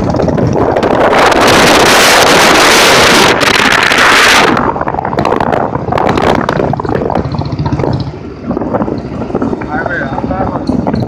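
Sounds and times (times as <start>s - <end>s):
motorcycle engine running: 0.0s - 11.0s
wind buffeting microphone: 0.0s - 11.0s
motorcycle knocking on rough track: 4.9s - 11.0s.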